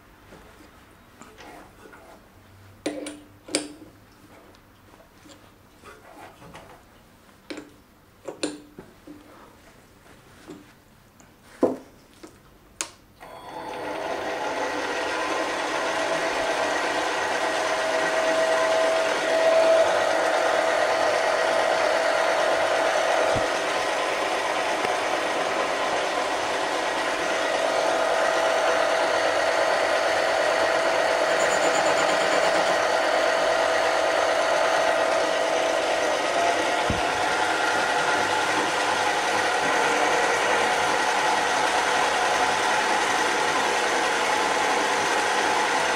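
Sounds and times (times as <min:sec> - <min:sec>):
lathe motor running: 0:13.2 - 0:45.9.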